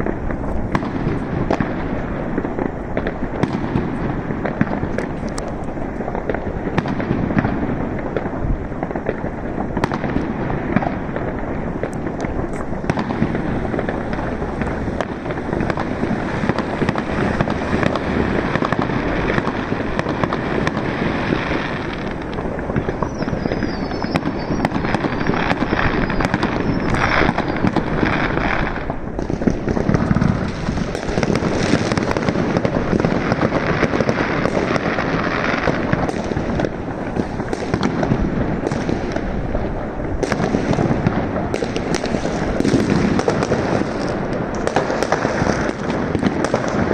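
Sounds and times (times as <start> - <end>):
fireworks and firecrackers bangs: 0.0 - 46.9
faint wavering whistle: 23.0 - 27.7.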